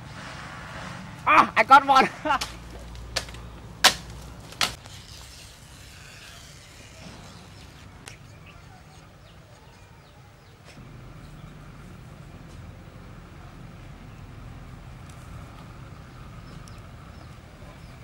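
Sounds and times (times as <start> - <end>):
coconut frond snapping: 2.4 - 5.3.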